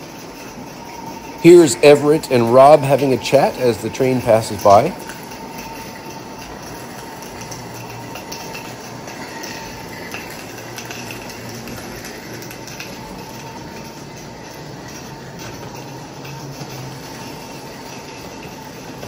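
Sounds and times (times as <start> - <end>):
wheels clicking on track: 0.0 - 19.0.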